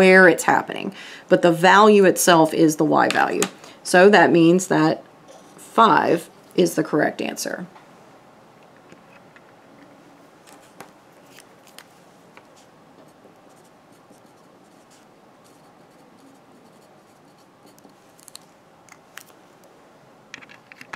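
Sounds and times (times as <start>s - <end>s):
low room hiss: 0.0s - 20.9s
pen scratching on paper: 13.5s - 17.9s.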